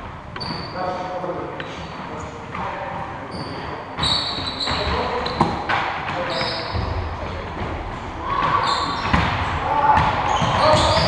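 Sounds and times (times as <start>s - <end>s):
sneakers squeaking: 0.2s - 11.0s
basketball bouncing: 8.4s - 11.0s.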